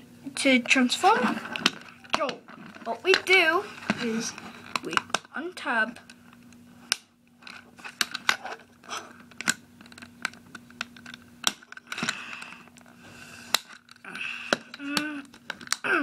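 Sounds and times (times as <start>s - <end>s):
plastic toy parts clicking: 13.5s - 15.9s.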